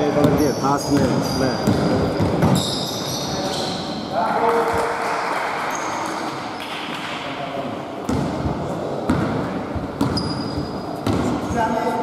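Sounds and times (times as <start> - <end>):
basketball bouncing on wooden floor: 0.2 - 2.6, 8.1 - 11.6.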